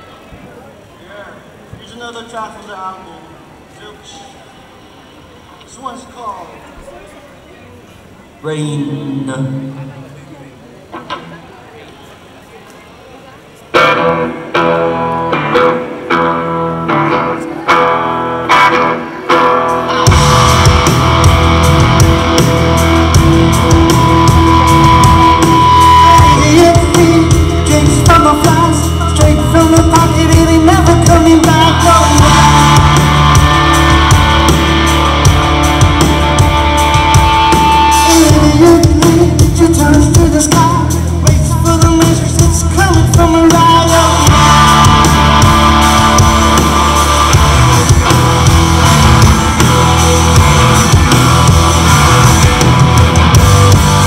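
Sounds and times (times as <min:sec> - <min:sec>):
electric guitars: 0:13.5 - 0:54.0
bass guitar: 0:13.8 - 0:54.0
drum kit: 0:19.7 - 0:54.0.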